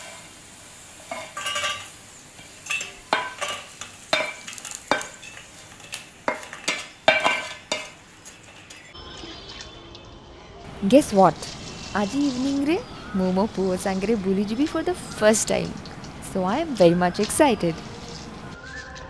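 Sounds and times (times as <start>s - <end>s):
metal spatula scraping pan: 11.4s - 12.7s.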